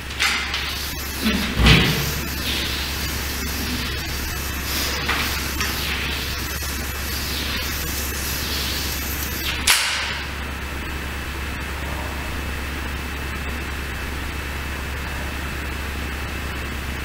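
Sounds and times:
chalk swishing on blackboard: 0.6 - 9.6.

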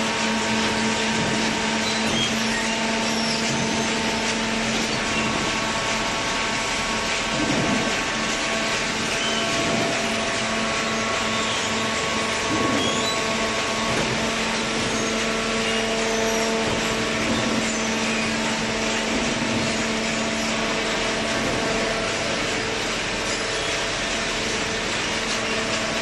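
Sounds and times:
hydraulic baler droning: 0.0 - 26.0.

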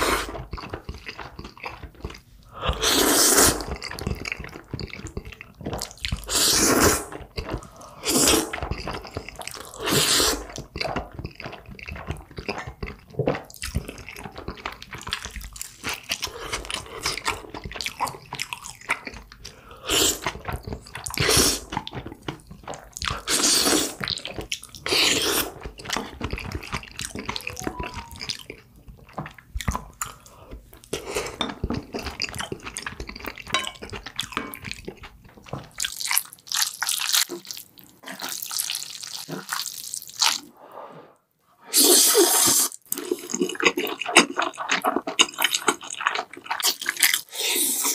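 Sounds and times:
wet chewing and mouth clicks: 0.0 - 40.4, 42.4 - 47.9
noodles being slurped: 2.6 - 5.1, 5.8 - 19.1, 35.8 - 40.6, 41.7 - 47.9.

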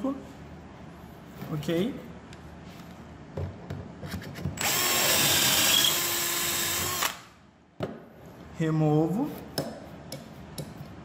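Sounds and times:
electric drill boring: 4.6 - 7.2.

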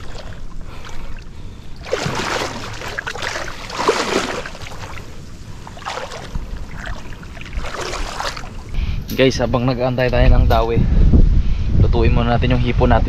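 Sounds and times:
water splashing around boat: 0.0 - 8.8.

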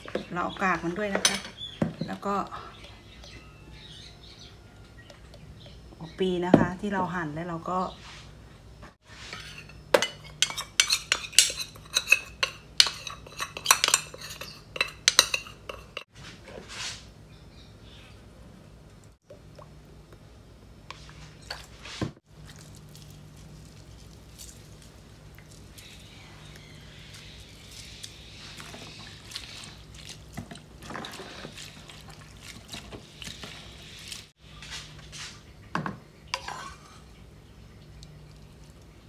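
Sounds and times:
spoon scraping small bowl: 9.1 - 16.1, 36.3 - 37.1
spoon stirring wet paste in bowl: 9.2 - 16.0, 36.3 - 37.1
low steady hum: 17.1 - 39.0.

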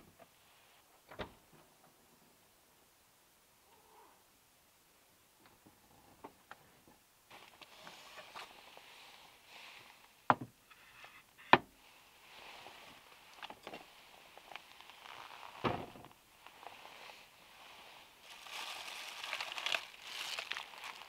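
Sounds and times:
paper bag rustling: 18.0 - 21.0.

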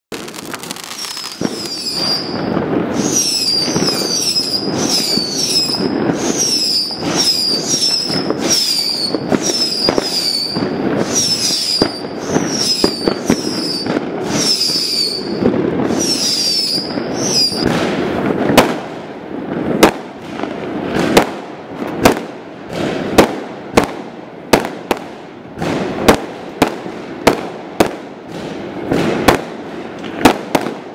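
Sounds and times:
fireworks crackling: 0.1 - 30.9
fireworks sharp bangs: 0.1 - 30.9
fireworks whistles falling in pitch: 0.2 - 18.8.

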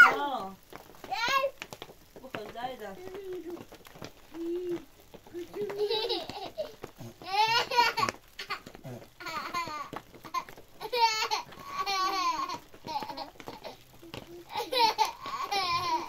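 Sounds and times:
child laughing and babbling: 4.3 - 16.0.

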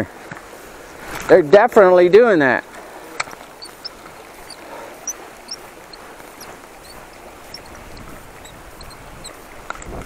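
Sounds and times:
river water rushing: 2.0 - 10.0
faint high-pitched chirps: 6.4 - 9.3.

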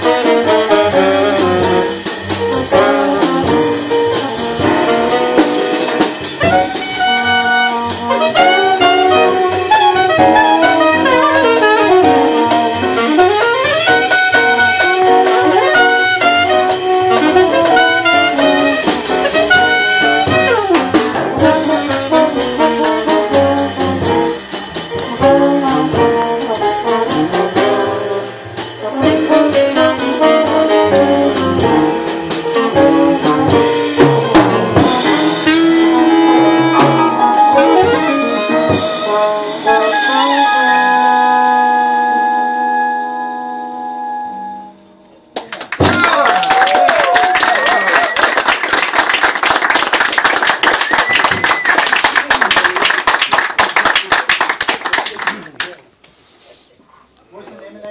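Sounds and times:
saxophone: 0.0 - 24.4, 25.0 - 34.0, 34.6 - 44.8
upright bass: 0.0 - 42.3
drum kit: 0.0 - 43.8, 44.4 - 55.4
trombone: 0.0 - 45.0
piano: 0.0 - 56.0.

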